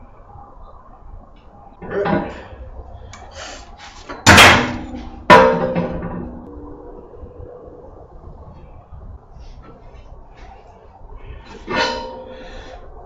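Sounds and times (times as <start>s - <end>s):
metal clanging on steel box: 4.2s - 6.3s.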